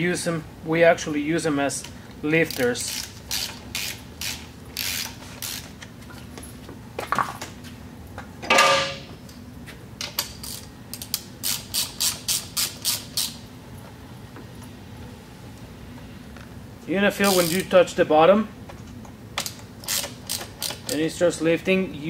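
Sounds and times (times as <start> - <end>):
hand ratchet clicking: 2.4 - 5.8, 10.0 - 13.4, 17.2 - 17.8, 19.4 - 21.0.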